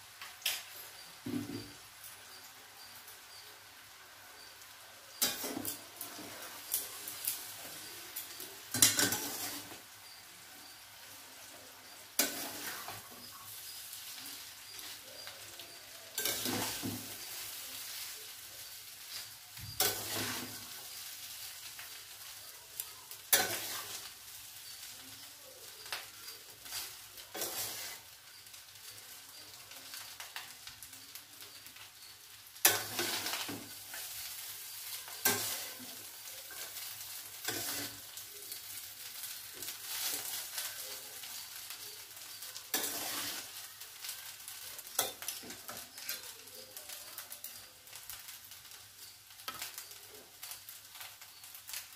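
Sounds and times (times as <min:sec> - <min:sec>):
pan sizzling: 0:00.0 - 0:51.9
metal spatula scraping a steel pan: 0:05.1 - 0:07.3, 0:08.2 - 0:10.2, 0:11.8 - 0:13.8, 0:14.7 - 0:18.1, 0:19.1 - 0:21.1, 0:23.3 - 0:24.1, 0:26.6 - 0:28.1, 0:32.6 - 0:34.3, 0:35.1 - 0:41.4, 0:42.3 - 0:43.6.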